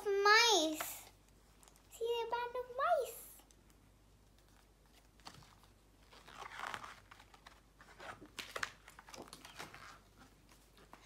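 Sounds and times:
paper pages rustling: 3.6s - 11.0s.

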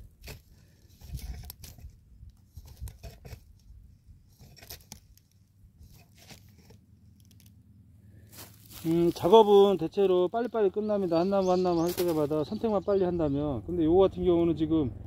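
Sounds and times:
footsteps on plastic film: 8.4s - 9.8s.

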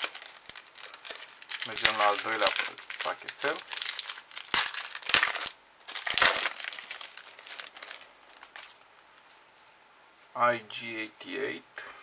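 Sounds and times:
foil wrapper crinkling: 0.0s - 8.8s.

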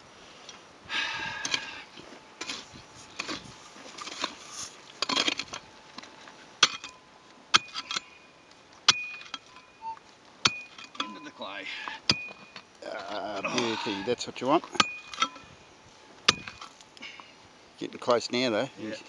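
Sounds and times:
pick digging into gravelly ground: 2.4s - 8.2s
pick striking stone with metallic ring: 8.9s - 9.8s, 10.4s - 11.4s, 12.1s - 12.6s, 14.8s - 15.4s.

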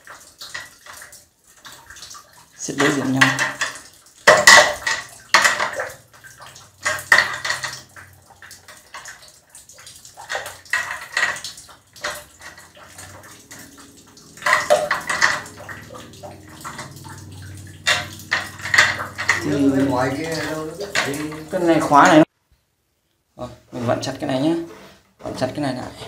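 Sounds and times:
metal nuts clicking and clattering: 6.8s - 8.0s, 14.3s - 19.5s.

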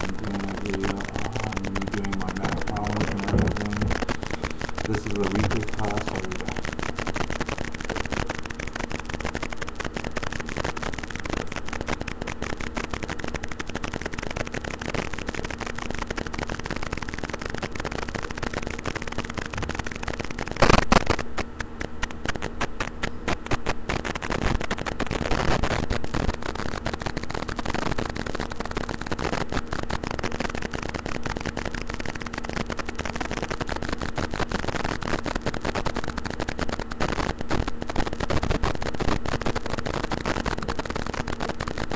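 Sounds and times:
crackling hiss of clicks: 0.0s - 41.9s
loud knock: 3.3s - 4.0s.

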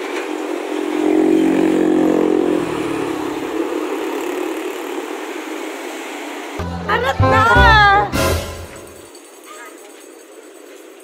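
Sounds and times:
steady traffic noise: 0.0s - 6.7s
truck engine passing close: 0.7s - 4.6s.

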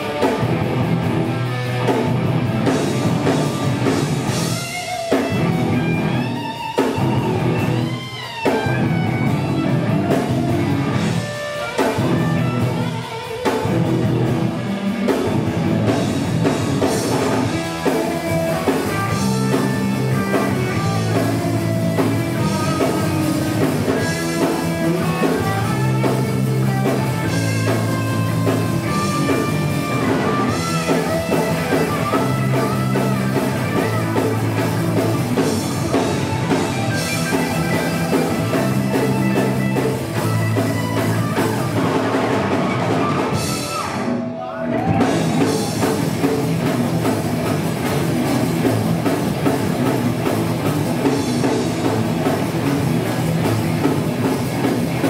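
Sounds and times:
bass guitar: 0.0s - 55.0s
drum kit: 0.0s - 55.0s
electric guitars: 0.0s - 55.0s.

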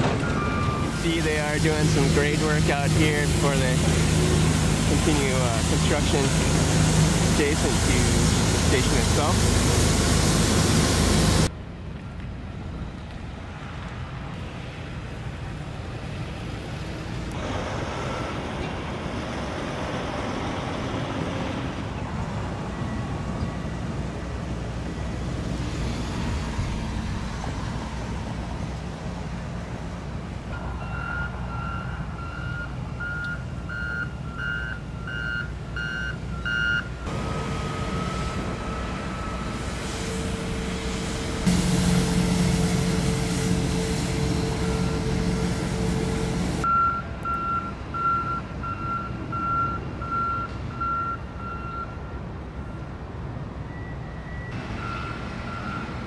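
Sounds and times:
loud rush of noise: 0.0s - 11.9s, 37.1s - 46.7s
heavy machinery engine rumble: 0.0s - 12.7s, 36.3s - 46.7s
reversing alarm beeps: 0.2s - 2.4s, 30.5s - 37.1s, 37.7s - 39.6s, 43.8s - 52.0s, 53.7s - 55.9s
steady held tone: 37.1s - 46.7s.

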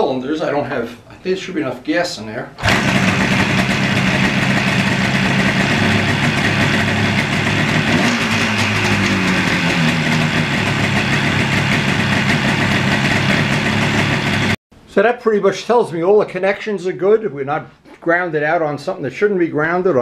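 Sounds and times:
motorcycle engine idling: 2.6s - 14.6s.

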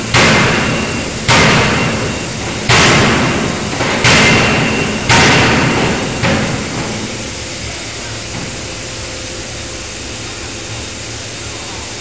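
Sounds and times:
forging hammer striking steel: 0.0s - 7.4s
steady machinery noise: 0.0s - 12.0s.

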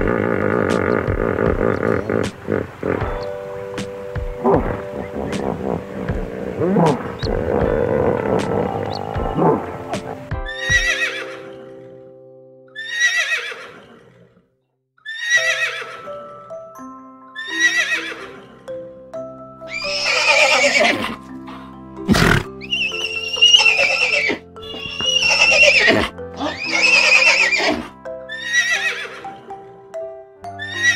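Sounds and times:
horse whinnying: 0.0s - 3.4s, 4.3s - 11.8s, 12.8s - 14.3s, 15.0s - 16.1s, 17.4s - 18.5s, 19.7s - 21.3s, 22.1s - 29.4s
background music of held notes: 0.0s - 13.3s, 15.2s - 30.9s.

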